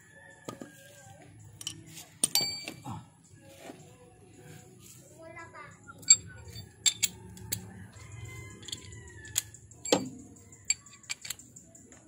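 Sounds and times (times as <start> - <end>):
metal tools clinking on metal: 1.5 - 2.8, 6.0 - 11.8.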